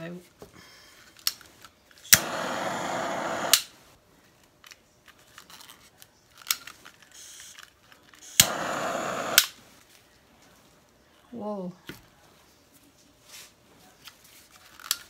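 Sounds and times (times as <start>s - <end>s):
torch flame hissing: 2.0s - 4.0s, 8.2s - 9.6s
torch lighting click: 2.1s - 3.8s, 8.2s - 9.6s.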